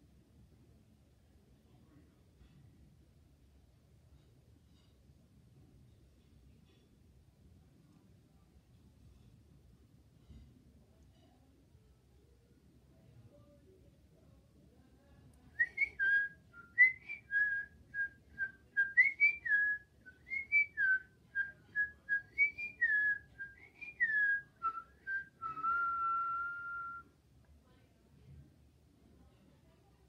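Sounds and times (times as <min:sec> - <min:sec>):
person whistling a tune: 0:15.6 - 0:27.1.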